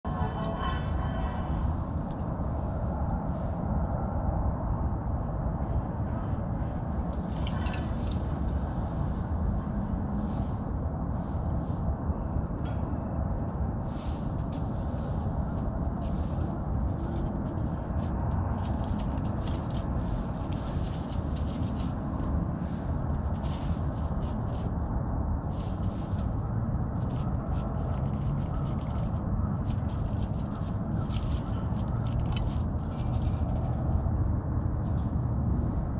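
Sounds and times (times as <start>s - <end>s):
low rumble: 0.0s - 35.9s
light crackling and rustling: 12.6s - 34.3s.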